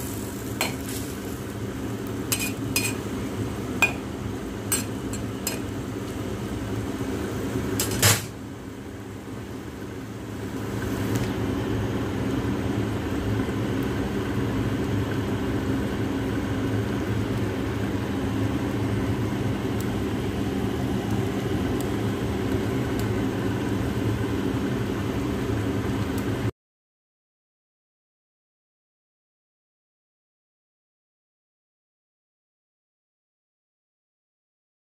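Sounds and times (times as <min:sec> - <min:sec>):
mechanical ventilation hum: 0:00.0 - 0:26.5.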